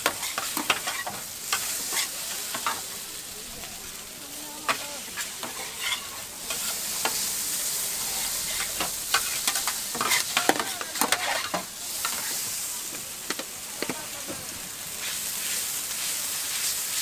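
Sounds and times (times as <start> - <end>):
noodles sizzling on griddle: 0.0 - 17.0
metal spatulas scraping and clacking: 4.7 - 7.2, 8.2 - 12.3.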